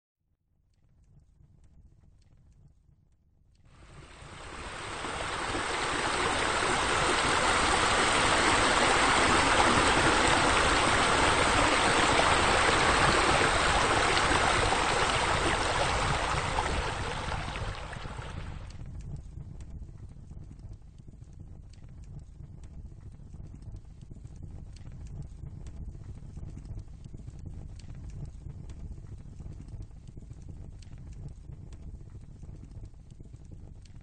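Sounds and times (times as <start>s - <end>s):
water splashing over edge: 3.8s - 18.7s.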